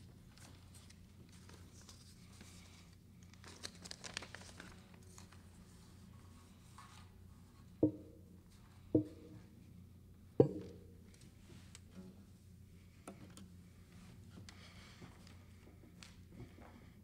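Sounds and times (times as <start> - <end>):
paper rustling and crinkling: 0.3 - 5.9.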